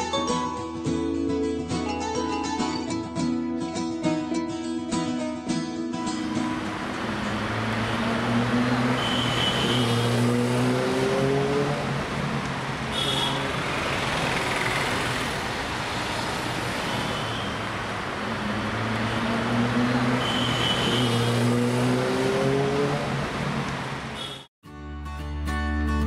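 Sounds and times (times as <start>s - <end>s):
vehicle engines passing: 6.2s - 24.3s.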